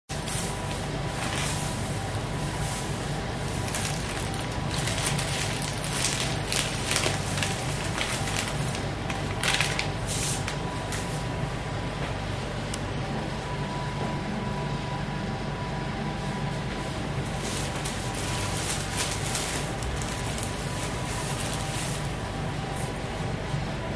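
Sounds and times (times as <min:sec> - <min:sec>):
steady low hum: 0:00.1 - 0:23.9
plastic bags rustling: 0:01.1 - 0:01.8, 0:03.5 - 0:10.6, 0:17.3 - 0:22.3.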